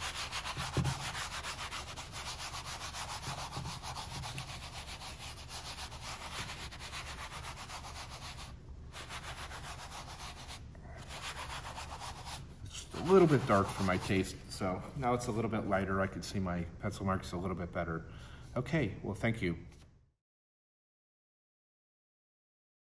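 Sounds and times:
towel rubbing wet paint: 0.0 - 14.4.

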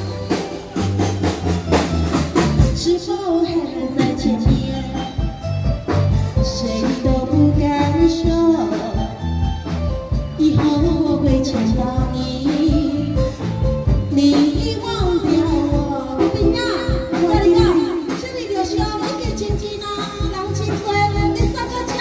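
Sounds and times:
steady drum beat: 0.0 - 3.2, 3.9 - 22.0
instrumental accompaniment: 0.0 - 22.0.

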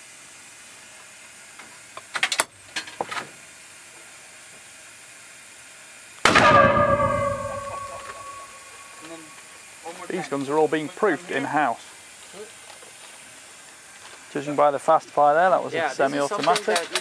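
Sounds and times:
loud gunshot: 6.3 - 9.0.

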